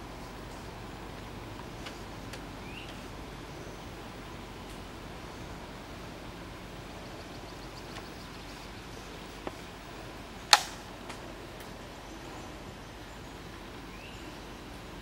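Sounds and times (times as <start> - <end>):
steady outdoor hiss: 0.0 - 15.0
sharp loud click: 10.5 - 10.8.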